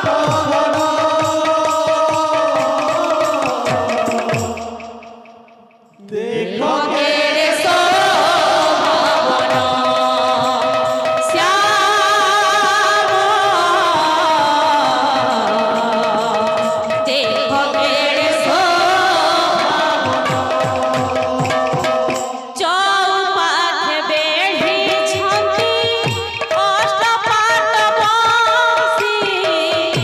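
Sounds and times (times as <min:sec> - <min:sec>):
woman singing into a microphone: 0:00.0 - 0:04.9, 0:06.0 - 0:30.0
barrel drum playing: 0:00.0 - 0:05.7, 0:15.2 - 0:22.6.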